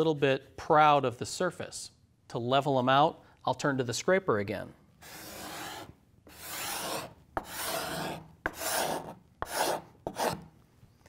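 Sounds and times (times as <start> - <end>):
card scraper shaving wood: 5.0 - 10.4.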